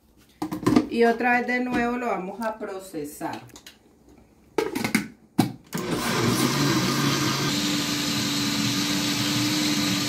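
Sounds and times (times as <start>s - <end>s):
blender motor grinding: 5.8s - 10.0s.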